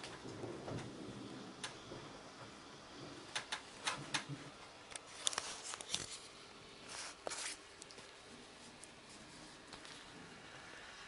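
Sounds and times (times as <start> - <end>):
rain drips tapping on hard surface: 0.0 - 5.1
faint steady hiss: 0.0 - 11.0
soft rustle: 4.0 - 10.8.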